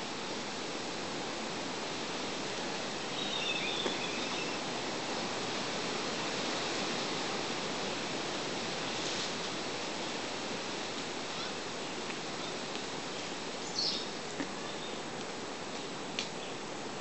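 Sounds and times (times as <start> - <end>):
forest ambience hiss: 0.0 - 17.0.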